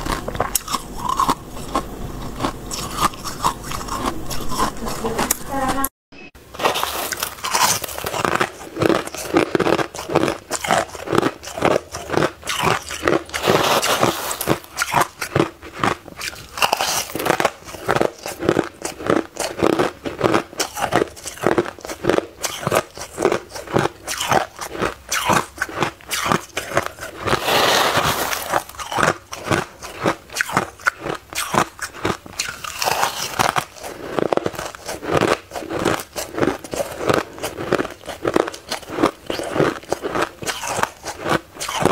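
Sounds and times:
ice being bitten and chewed: 0.0 - 5.8, 6.5 - 41.9.

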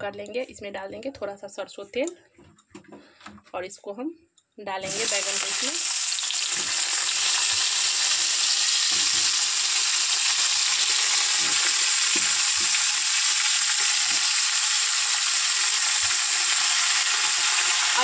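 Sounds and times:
vegetables sizzling in oil: 4.8 - 18.0.

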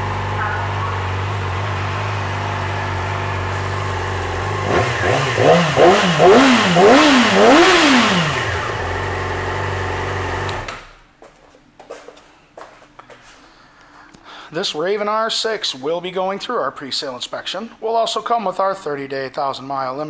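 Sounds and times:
motorcycle engine idling and revving: 0.0 - 10.7.

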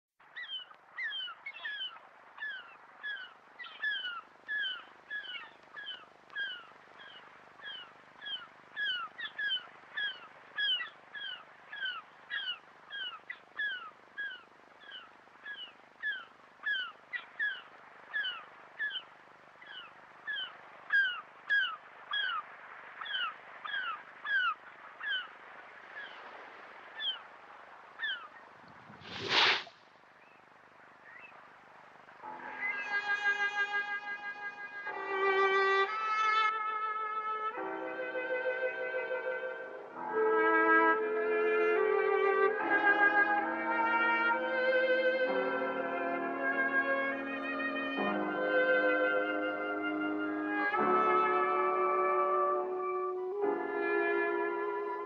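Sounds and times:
gulls calling: 0.3 - 28.5
faint hiss: 0.3 - 36.4.

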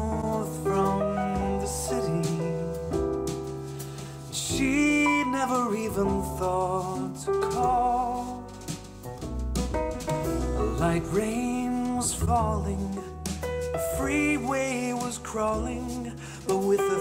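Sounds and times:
song with singing over speakers: 0.0 - 3.0, 3.8 - 8.8, 10.2 - 17.0.

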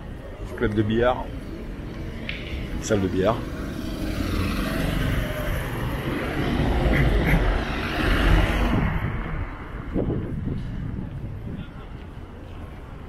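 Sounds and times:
vehicle passing: 1.2 - 11.5.

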